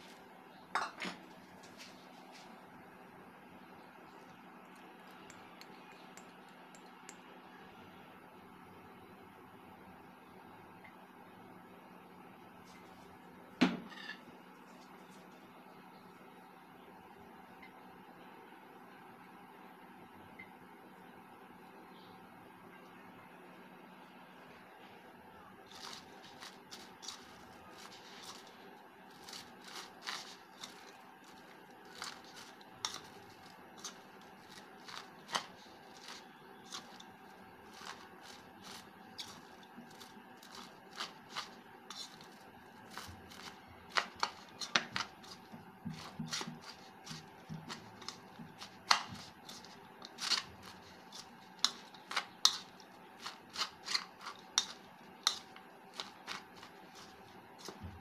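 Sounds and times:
fork scraping a ceramic plate: 29.1 - 37.0, 42.9 - 57.8.

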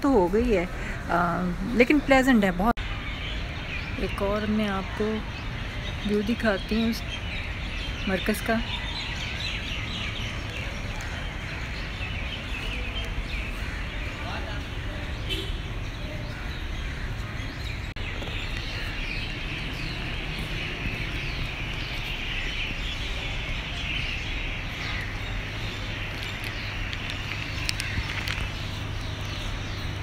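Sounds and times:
birds chirping chorus: 0.0 - 30.0
steady low rumble: 16.6 - 30.0.

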